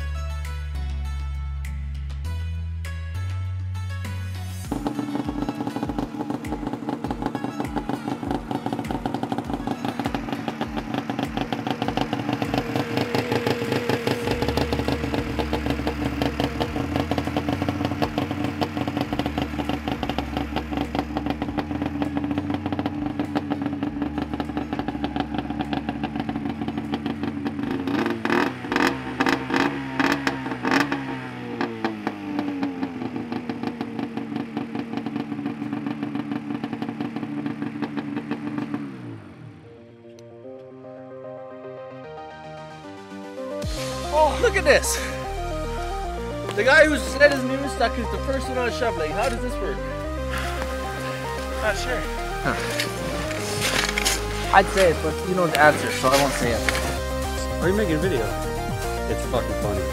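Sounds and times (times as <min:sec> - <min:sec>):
snowmobile engine running and revving: 0:04.6 - 0:39.7, 0:43.6 - 0:59.9.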